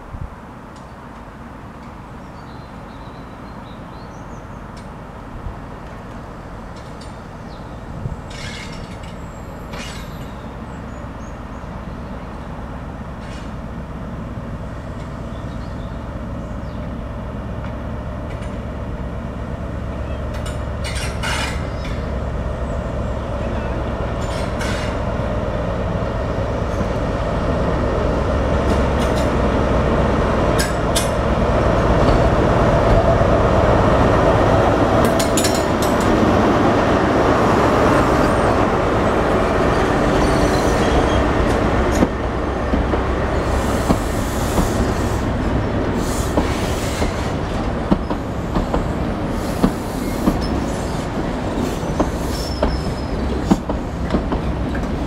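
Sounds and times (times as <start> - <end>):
diesel locomotive engine rumble: 0.0 - 55.0
train wheels squealing: 7.1 - 11.3, 20.0 - 22.1, 23.4 - 25.0, 39.6 - 41.4, 46.0 - 47.4, 48.0 - 54.1
wheels clicking over rail joints: 8.3 - 10.4, 20.3 - 22.1.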